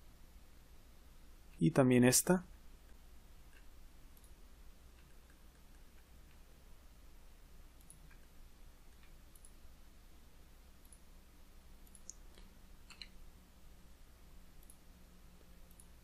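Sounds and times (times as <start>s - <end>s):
low room hiss: 0.0s - 16.0s
computer mouse clicks: 2.8s - 6.5s, 7.8s - 9.6s, 10.8s - 11.1s, 11.8s - 13.2s, 14.6s - 14.8s, 15.4s - 16.0s.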